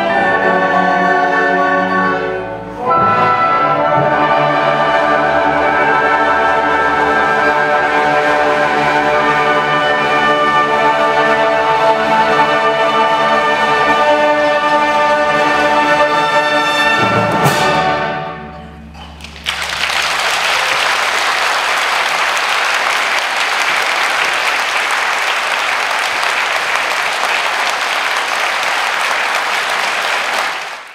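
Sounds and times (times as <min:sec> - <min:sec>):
audience applause: 0:19.0 - 0:30.9.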